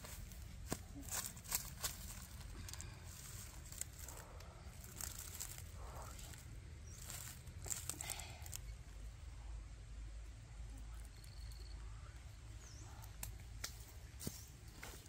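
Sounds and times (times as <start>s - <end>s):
footsteps on dry leaves: 0.0s - 8.6s, 13.8s - 15.0s
low steady rumble: 0.0s - 15.0s.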